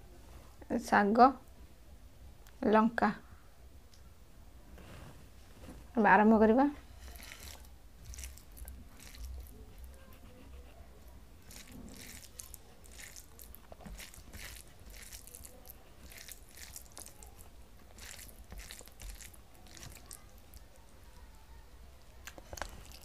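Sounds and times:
fingers squelching rice and curry: 7.0s - 10.0s, 11.4s - 20.7s, 22.2s - 23.0s.

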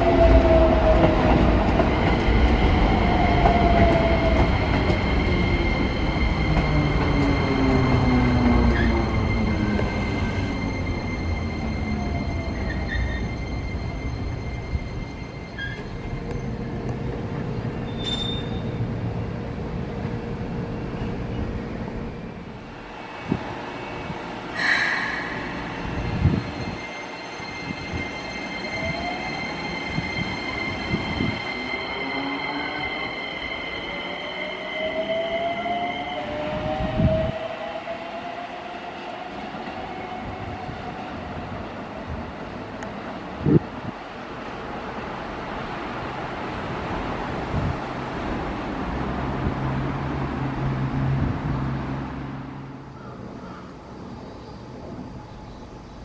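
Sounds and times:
train cars rumbling: 0.0s - 56.0s
train wheel squeal: 2.0s - 16.6s, 17.8s - 18.9s, 23.7s - 37.3s.

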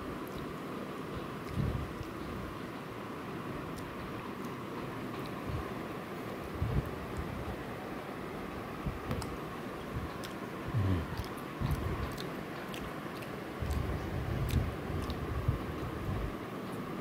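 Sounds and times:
person chewing egg: 10.0s - 15.3s
small mouth clicks: 10.1s - 15.2s.

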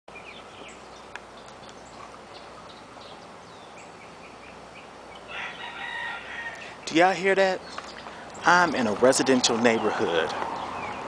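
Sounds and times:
rooster crowing: 5.3s - 6.8s.

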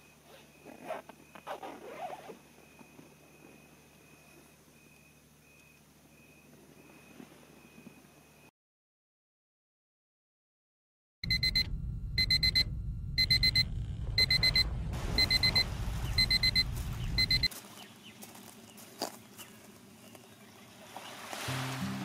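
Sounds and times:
electronic alarm beeping: 11.2s - 17.5s
low rumble: 11.2s - 17.5s.

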